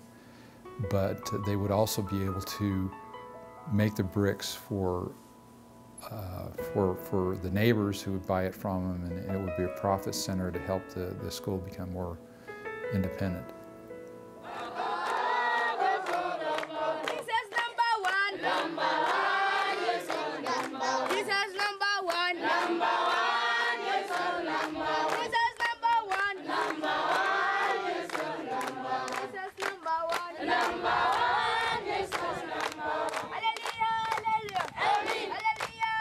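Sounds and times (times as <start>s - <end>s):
sharp clap-like beats: 28.1s - 31.3s, 32.1s - 36.0s.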